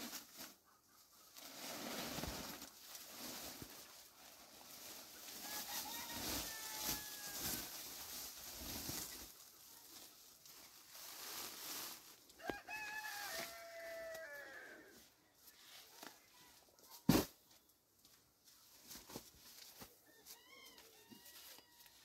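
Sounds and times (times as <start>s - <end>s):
rooster crowing: 5.4s - 7.7s, 12.4s - 14.9s.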